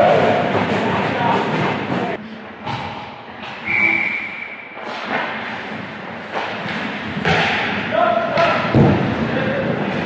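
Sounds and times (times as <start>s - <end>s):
hockey sticks and puck thudding: 0.0s - 10.0s
referee whistle: 3.6s - 4.8s.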